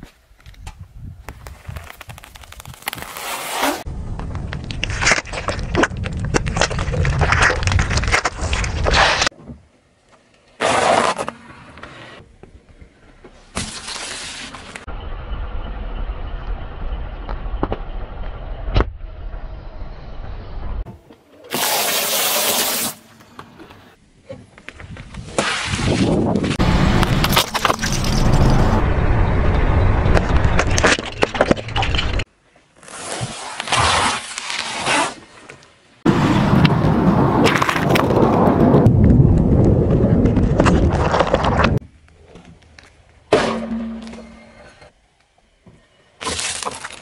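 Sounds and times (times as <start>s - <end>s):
tyre and engine rumble: 26.6s - 32.3s.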